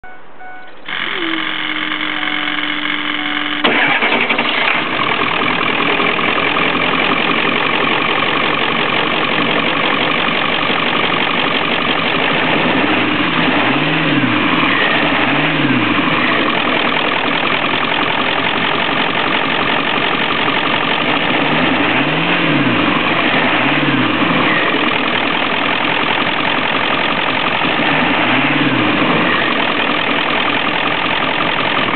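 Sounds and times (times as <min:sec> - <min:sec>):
diesel engine idling: 0:00.0 - 0:31.9
starter motor cranking: 0:00.8 - 0:12.4.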